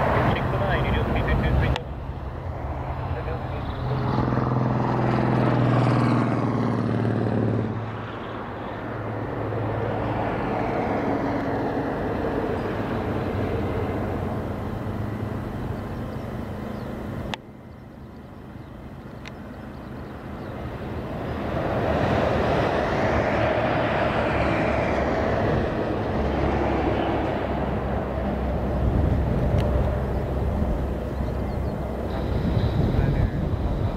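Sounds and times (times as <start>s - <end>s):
jet engine roar: 0.0s - 33.9s.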